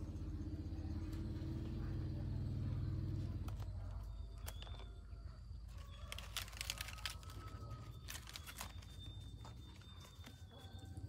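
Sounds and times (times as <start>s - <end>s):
rice paper crinkling: 5.6s - 11.0s
lettuce leaves crackling: 5.7s - 11.0s.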